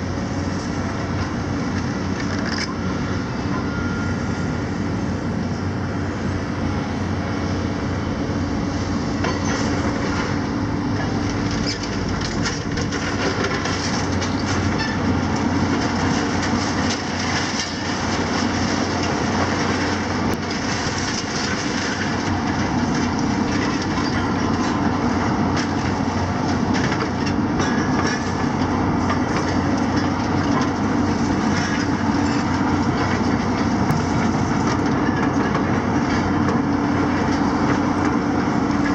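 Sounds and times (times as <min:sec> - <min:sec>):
excavator diesel engines: 0:00.0 - 0:38.9
concrete and metal debris crunching: 0:11.0 - 0:24.8.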